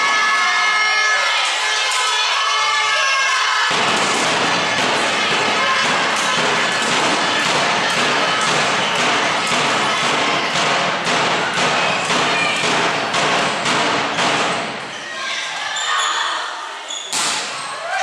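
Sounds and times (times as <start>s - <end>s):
crowd cheering and chanting: 0.0s - 18.0s
rhythmic drum beat: 3.7s - 14.8s.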